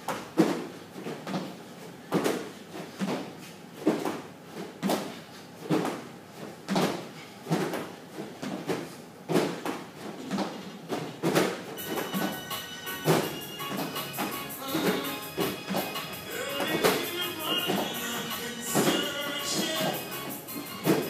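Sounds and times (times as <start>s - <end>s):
music: 11.8s - 21.0s
rhythmic scraping strokes: 11.8s - 21.0s.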